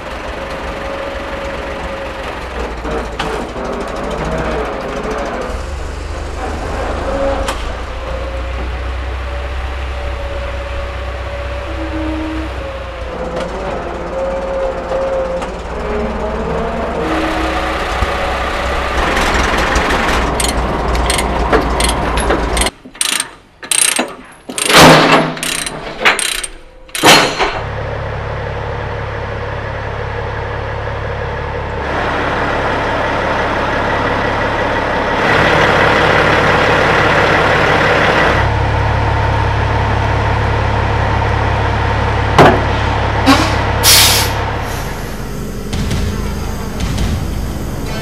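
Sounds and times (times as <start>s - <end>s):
diesel truck engine idling: 0.0s - 22.6s, 27.6s - 48.0s
chains clanking: 20.4s - 27.6s
chain binder clicking: 25.4s - 27.1s.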